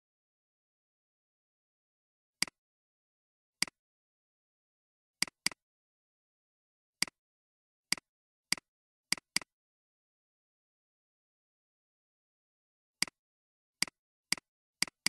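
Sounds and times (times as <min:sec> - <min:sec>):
computer mouse clicks: 0:07.9 - 0:09.5.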